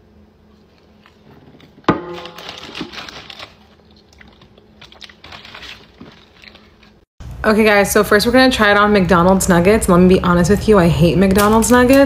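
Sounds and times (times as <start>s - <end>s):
wet crackly smacking: 1.0s - 7.1s
person chewing: 3.4s - 7.0s.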